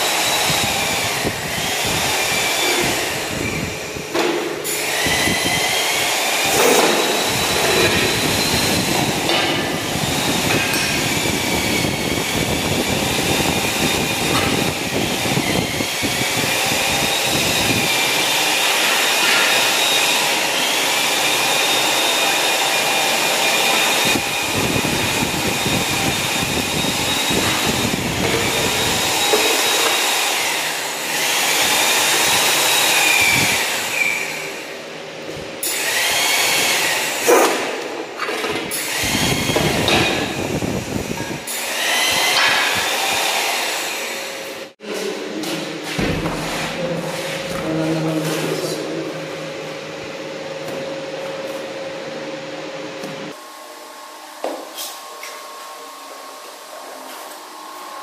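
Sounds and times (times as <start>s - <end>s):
electric power tool whining: 0.0s - 44.8s.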